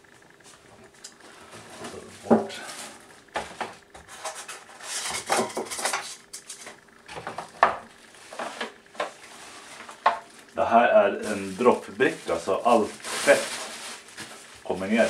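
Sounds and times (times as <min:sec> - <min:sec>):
packaging rustling: 0:11.2 - 0:15.0.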